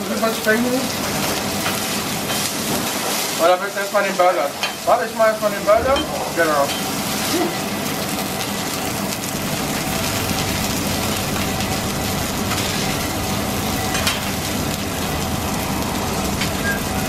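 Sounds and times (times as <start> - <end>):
meat and onions sizzling on griddle: 0.0 - 17.0
low hum: 5.5 - 7.5.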